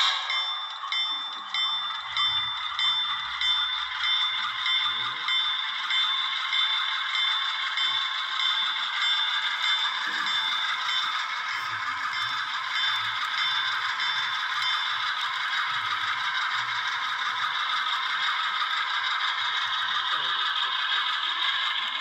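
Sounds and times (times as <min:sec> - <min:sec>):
wheels rattling on track: 0:00.0 - 0:22.0
diesel engine sound from small speaker: 0:19.8 - 0:20.5.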